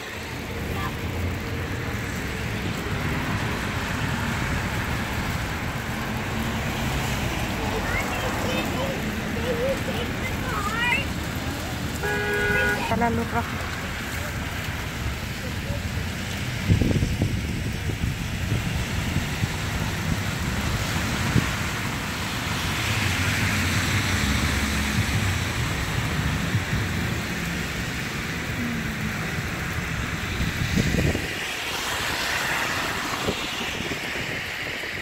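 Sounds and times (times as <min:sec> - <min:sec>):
tyres hissing through slush: 0:00.0 - 0:12.9, 0:27.7 - 0:35.0
wind buffeting microphone: 0:14.0 - 0:27.6, 0:28.3 - 0:35.0.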